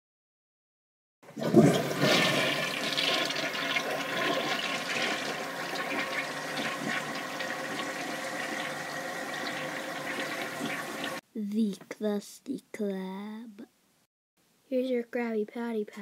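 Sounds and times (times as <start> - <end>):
rushing water: 1.4 - 11.2.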